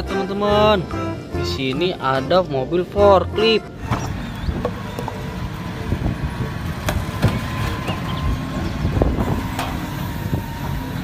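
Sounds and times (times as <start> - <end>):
forklift engine running: 0.0 - 11.0
sharp knocks and clunks: 6.8 - 8.1.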